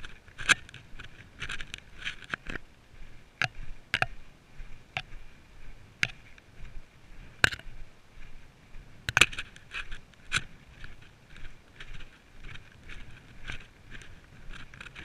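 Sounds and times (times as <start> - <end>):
trekking poles clicking: 0.0 - 2.7, 3.4 - 4.2, 4.9 - 5.2, 6.0 - 6.5, 7.4 - 7.7, 9.1 - 15.0.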